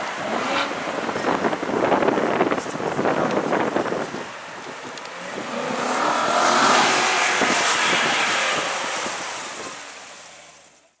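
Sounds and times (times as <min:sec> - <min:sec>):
car driving past: 0:05.2 - 0:10.8.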